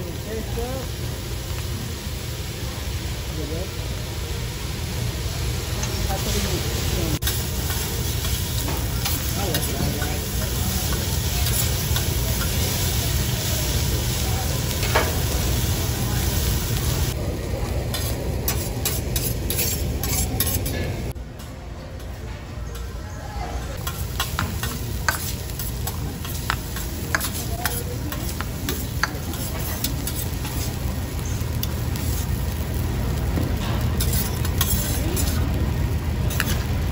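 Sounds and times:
rice sizzling on a griddle: 0.0 - 20.8, 23.7 - 36.9
metal spatulas scraping and clacking: 17.9 - 21.0, 23.8 - 30.7, 33.6 - 35.4, 36.3 - 36.7.

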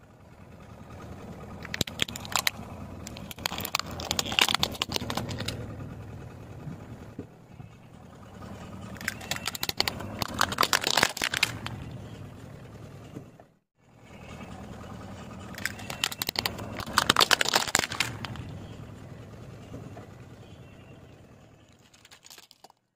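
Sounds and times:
car engine humming: 0.0 - 22.8
plastic toys cracking under tyre: 1.6 - 5.6, 8.9 - 11.8, 15.5 - 18.6, 21.7 - 22.9.

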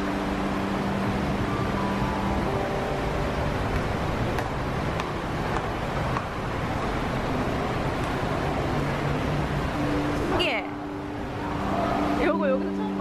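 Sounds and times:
stream rushing over rocks: 0.0 - 13.0.

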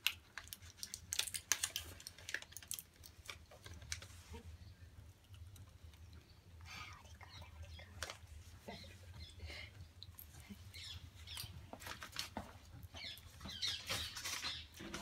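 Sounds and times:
blister pack crackling clicks: 0.0 - 4.1.

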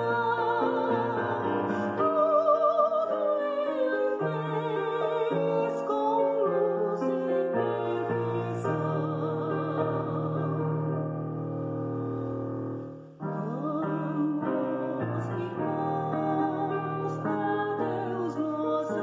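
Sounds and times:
woman singing a hymn: 0.0 - 19.0.

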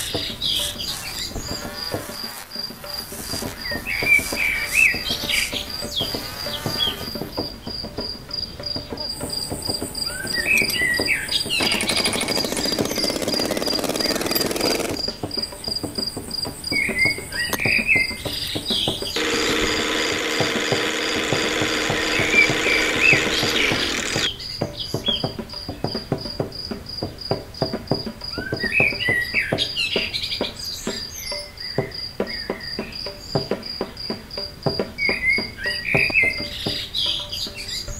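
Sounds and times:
birds chirping: 0.0 - 26.2, 27.0 - 37.9
cricket trilling: 0.0 - 29.7.

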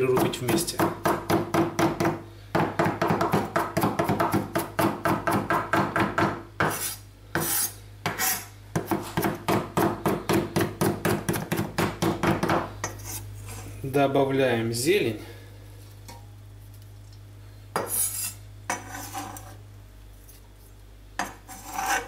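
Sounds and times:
knife chopping on wooden board: 0.1 - 12.7
knife blade scraping board: 6.6 - 9.3, 12.8 - 13.7, 17.8 - 19.6, 21.2 - 22.0.

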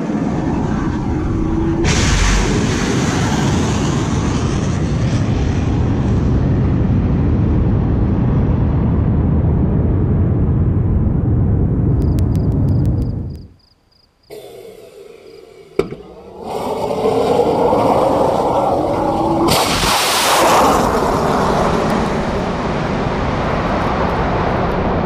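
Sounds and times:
rocket motor deep rumble: 0.0 - 13.5, 14.3 - 25.0.

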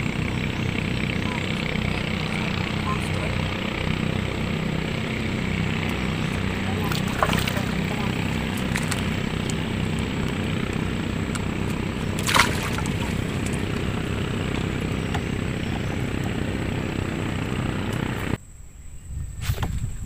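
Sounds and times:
small motor droning: 0.0 - 18.4
fish dropping into wooden hold: 6.8 - 9.7, 12.2 - 13.8.

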